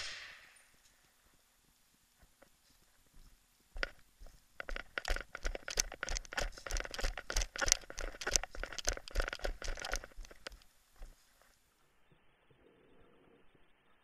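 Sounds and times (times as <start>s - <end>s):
dry undergrowth crunching and snapping: 4.6s - 10.6s.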